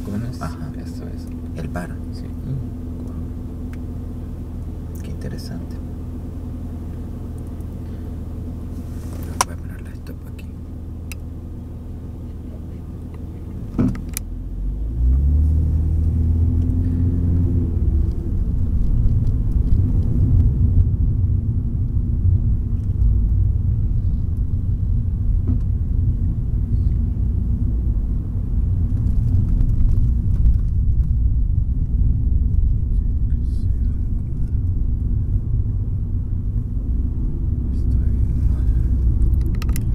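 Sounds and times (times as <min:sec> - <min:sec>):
car engine idling and accelerating: 0:00.0 - 0:39.9
tyre noise while driving: 0:27.2 - 0:33.0.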